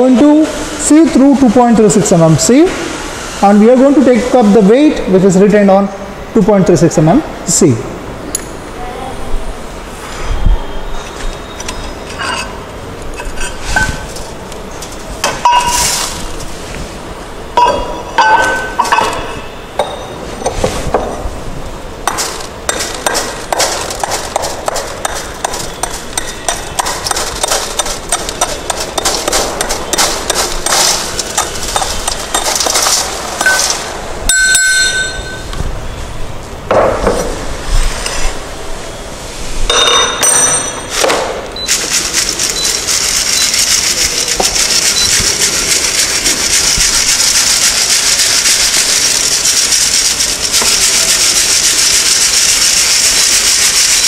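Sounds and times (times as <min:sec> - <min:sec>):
sieve shaking hissing rattle: 0:13.4 - 0:17.0, 0:22.1 - 0:34.0, 0:41.6 - 0:54.0.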